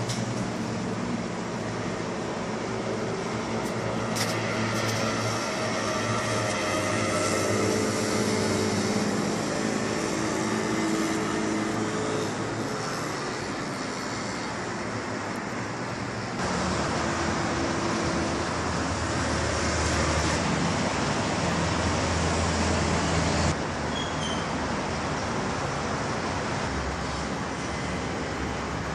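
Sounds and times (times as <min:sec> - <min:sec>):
distant road traffic: 0:00.0 - 0:28.9.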